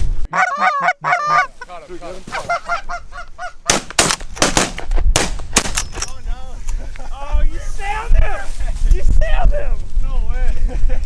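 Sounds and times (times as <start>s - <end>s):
geese honking: 0.3s - 3.8s
shotgun shots: 3.7s - 6.0s.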